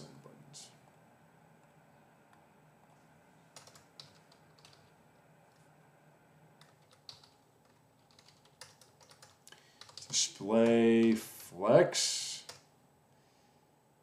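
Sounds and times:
faint keyboard typing: 1.6 - 5.8, 6.6 - 11.5, 12.4 - 12.7.

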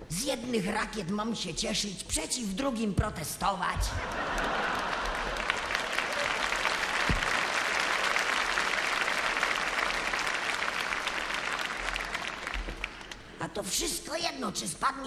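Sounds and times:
audience applauding: 4.0 - 13.4.

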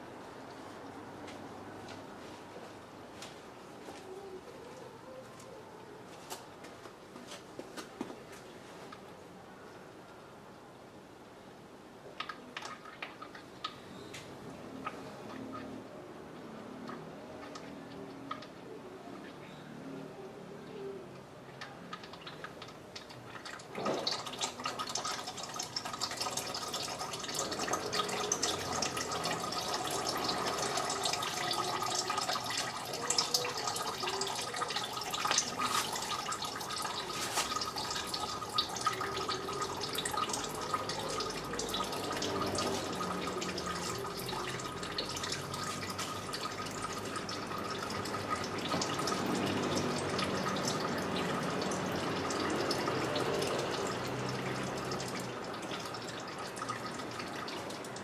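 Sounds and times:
fluid splattering and dripping: 21.9 - 58.0.

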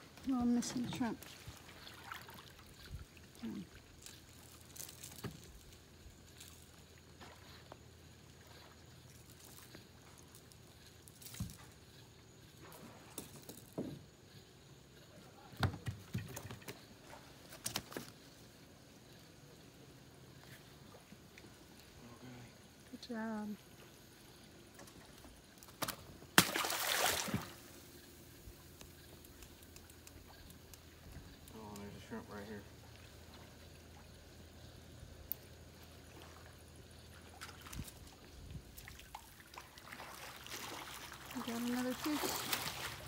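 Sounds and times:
fish splashing into water: 25.7 - 27.8, 38.8 - 43.0.

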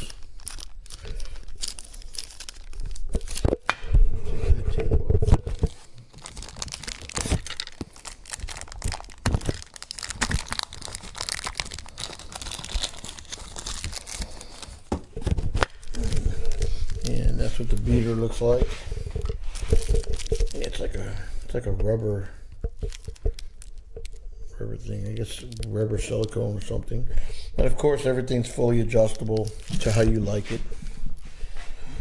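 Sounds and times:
plastic bag crinkling and tearing: 0.0 - 3.7, 5.3 - 18.6, 19.2 - 21.8, 22.8 - 24.2, 24.8 - 26.9, 28.4 - 30.6.

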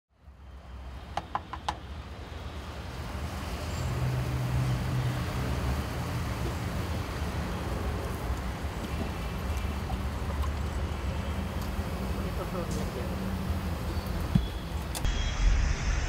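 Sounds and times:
street traffic rumble: 0.1 - 16.0.

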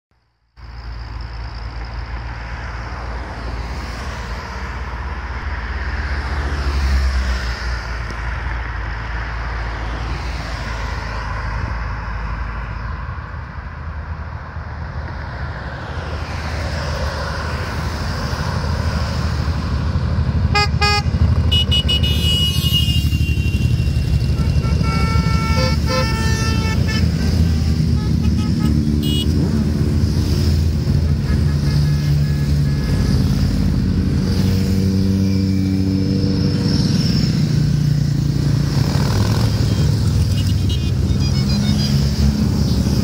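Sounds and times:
road traffic passing: 0.2 - 43.0
motorcycles approaching: 16.1 - 43.0
vehicle horns tooting: 20.5 - 29.4, 31.1 - 33.2, 39.6 - 42.9.

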